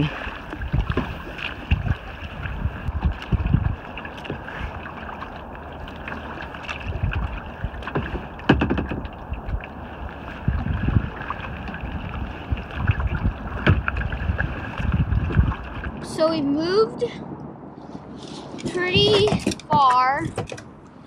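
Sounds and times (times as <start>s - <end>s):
paddle strokes splashing: 0.0s - 16.2s
water lapping around hull: 0.0s - 16.9s
wind gusting on microphone: 0.0s - 20.8s.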